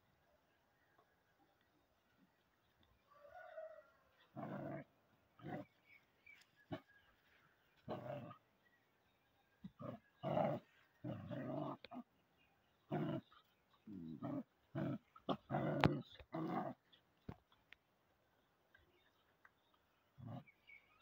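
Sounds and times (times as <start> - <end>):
young dogs growling: 4.2 - 6.0, 7.8 - 8.5, 9.6 - 12.1, 12.8 - 17.0, 20.1 - 20.9.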